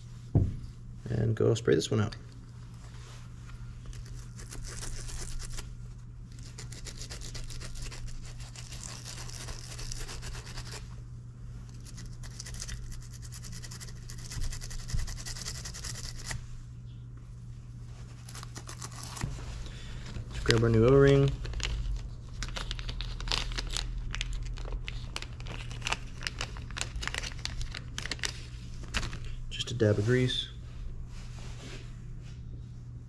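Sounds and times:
steady low hum: 0.0 - 33.0
stiff brush scrubbing: 3.9 - 5.7, 6.3 - 10.9, 11.7 - 16.4.

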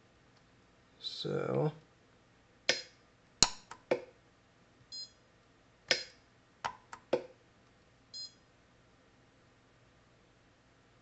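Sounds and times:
short electronic beep: 8.2 - 8.4.

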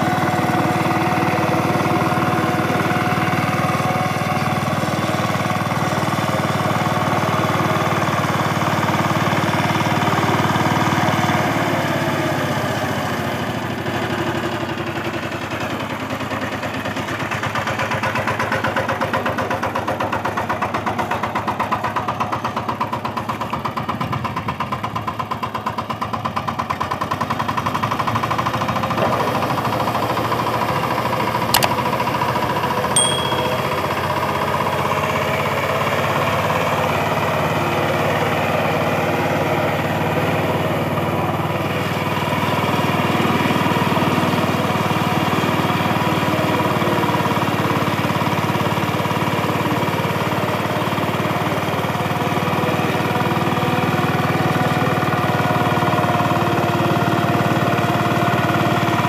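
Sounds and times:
sharp click: 31.5 - 31.8
diesel engine running: 34.3 - 59.0.

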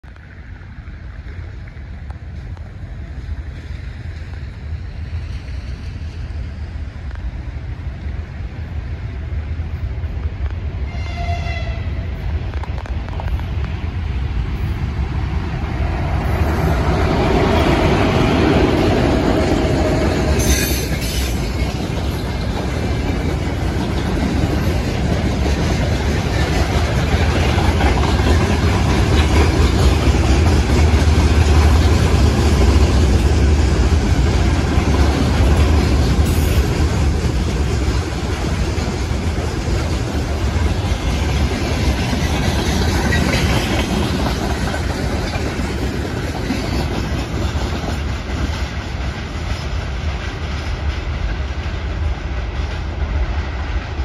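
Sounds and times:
train horn blast: 10.8 - 12.1
freight wagons clattering on rails: 16.2 - 53.3.

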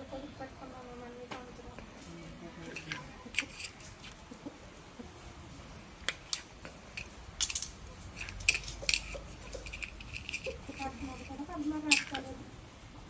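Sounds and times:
toy blocks clicking on tiled floor: 2.6 - 4.2, 6.0 - 12.4.

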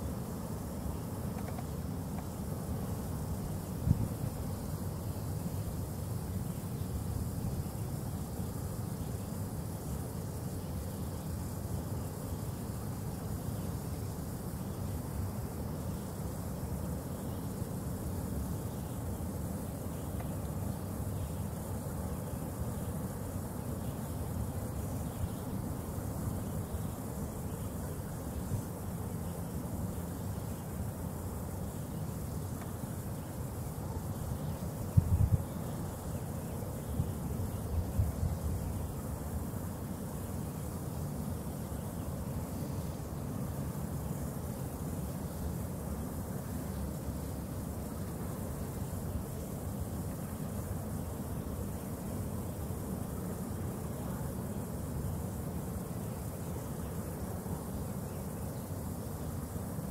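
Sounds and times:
faint hiss: 0.0 - 59.9
wind buffeting microphone: 34.9 - 35.5.

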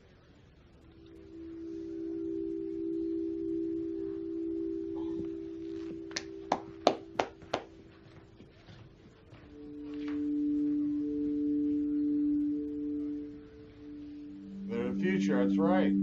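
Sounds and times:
two-note musical drone: 0.9 - 7.9, 9.5 - 16.0
hand claps: 6.1 - 7.8.

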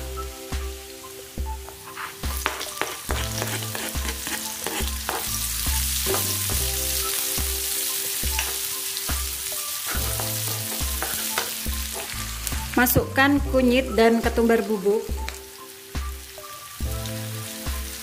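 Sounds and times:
shallots sizzling in hot oil: 0.0 - 18.0
spatula scraping wok: 1.8 - 6.6, 9.8 - 12.5.

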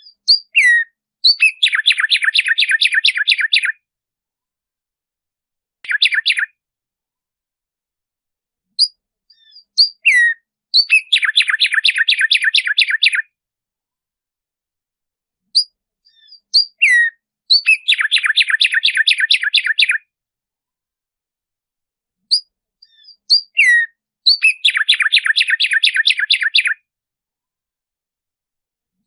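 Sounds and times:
sparrow singing: 0.0 - 3.8, 5.8 - 6.6, 8.7 - 13.3, 15.4 - 20.1, 22.2 - 26.8.

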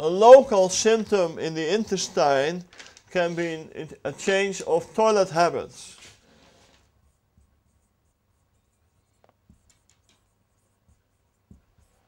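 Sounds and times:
marker squeaking on whiteboard: 5.9 - 12.0.

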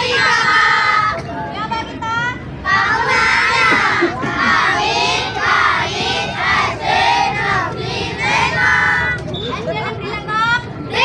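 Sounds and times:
children chanting in unison: 2.6 - 9.1.

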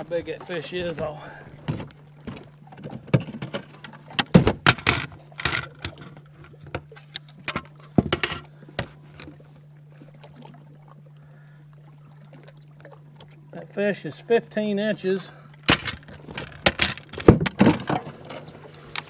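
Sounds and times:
knocks and thumps in metal boat: 0.0 - 6.3, 15.7 - 18.5
steady low hum: 0.0 - 19.0.

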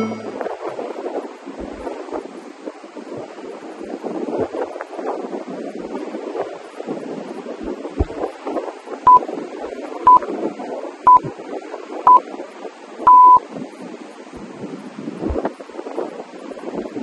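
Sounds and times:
long timer beep: 0.0 - 0.4, 11.1 - 11.3, 13.1 - 13.4
short timer beeps: 0.0 - 0.4, 11.1 - 11.3, 13.1 - 13.4.

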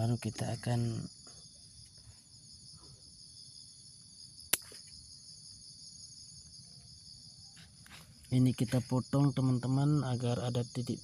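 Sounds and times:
insects chirring: 0.0 - 11.0
scissors snipping a branch: 4.5 - 4.8.

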